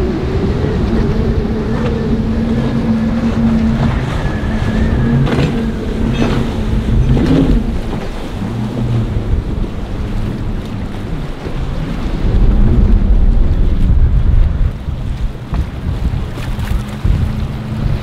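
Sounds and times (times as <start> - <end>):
motorboat engine humming: 0.0 - 18.0
wind buffeting microphone: 0.0 - 18.0.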